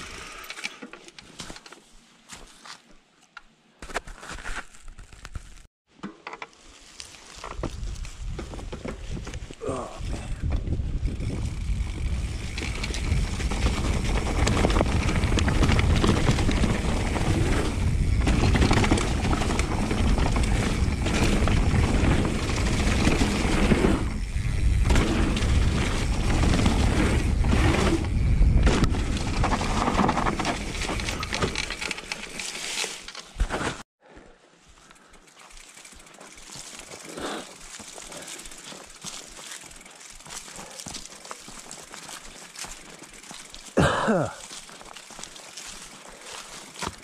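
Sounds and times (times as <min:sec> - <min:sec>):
bike tyres rumbling over dirt: 0:06.6 - 0:33.8, 0:34.7 - 0:47.0
bike rattling over bumps: 0:07.2 - 0:33.8, 0:35.3 - 0:47.0
wind buffeting microphone: 0:07.6 - 0:29.8.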